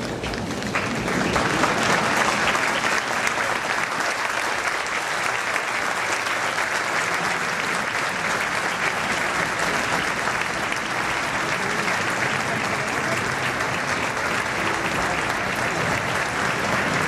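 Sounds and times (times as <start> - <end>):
crowd applauding: 0.0 - 17.0.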